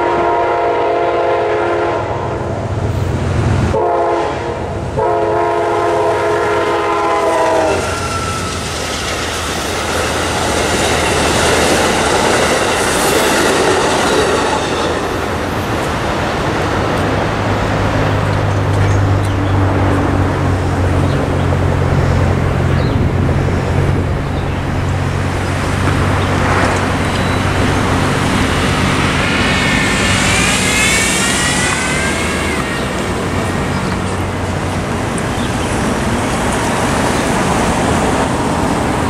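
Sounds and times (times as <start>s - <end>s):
cars driving over railroad tracks: 2.5s - 39.0s
vehicle passing with whine: 17.3s - 34.4s
tyre hiss: 28.0s - 33.1s.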